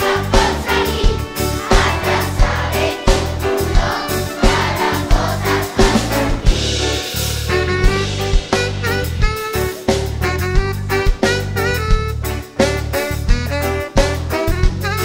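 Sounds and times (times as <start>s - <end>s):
children's choir singing: 0.0s - 7.0s
band accompaniment with bass: 0.0s - 15.0s.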